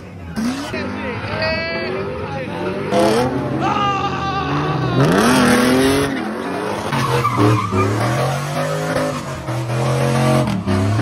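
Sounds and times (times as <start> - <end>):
tyres screeching in a burnout: 0.2 - 11.0
car engine revving hard: 1.9 - 3.6, 4.5 - 11.0.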